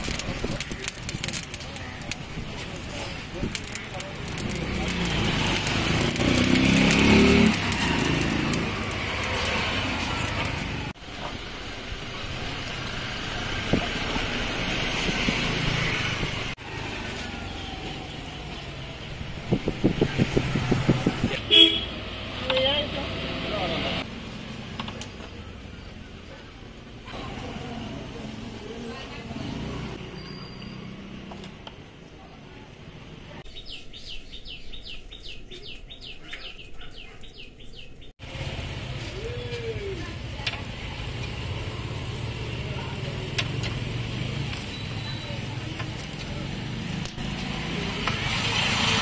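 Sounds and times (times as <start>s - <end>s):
busy street traffic: 0.0s - 49.0s
bird chirping: 30.0s - 31.0s, 33.5s - 38.2s, 44.6s - 45.6s.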